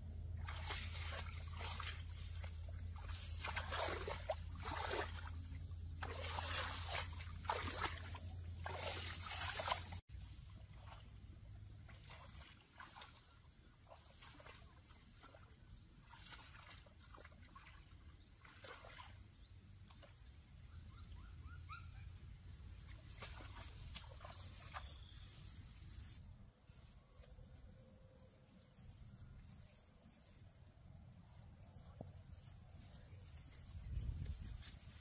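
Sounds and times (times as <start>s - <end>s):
soft rustling: 31.3s - 35.0s.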